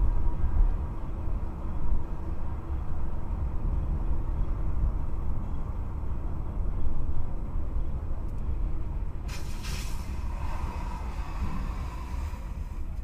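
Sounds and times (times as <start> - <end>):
brief hiss: 9.3 - 13.0
car driving on wet road: 9.3 - 13.0.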